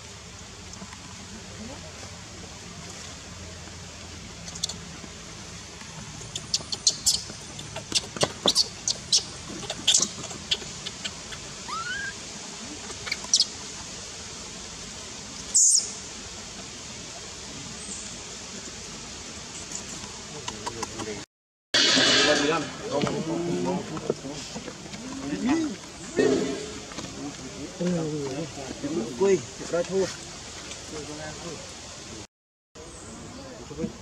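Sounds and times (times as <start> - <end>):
baby monkey squeaking: 6.2 - 11.1, 11.7 - 12.1.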